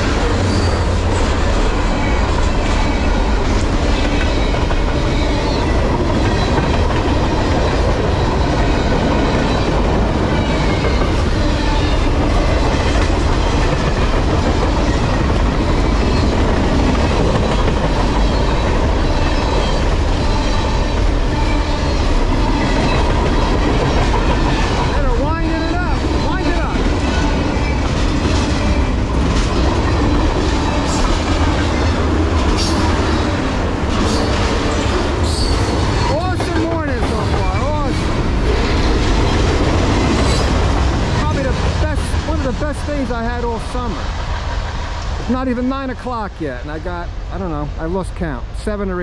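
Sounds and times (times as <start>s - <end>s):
steel wheels on rails: 0.0s - 46.8s
freight train rolling past: 0.0s - 49.0s.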